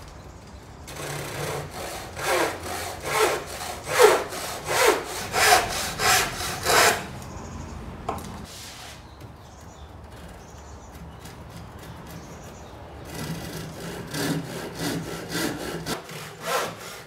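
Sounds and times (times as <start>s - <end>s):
handsaw cutting wood: 0.9s - 7.1s, 13.0s - 17.0s.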